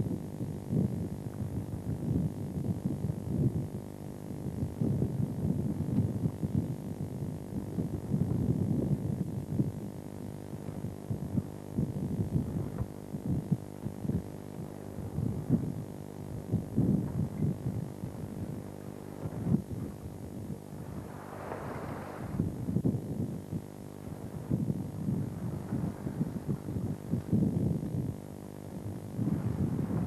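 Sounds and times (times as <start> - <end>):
boat engine humming: 12.4 - 30.0.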